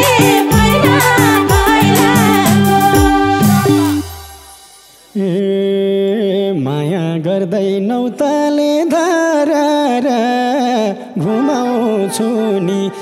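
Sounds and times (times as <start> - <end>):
man singing into a microphone: 5.1 - 13.0.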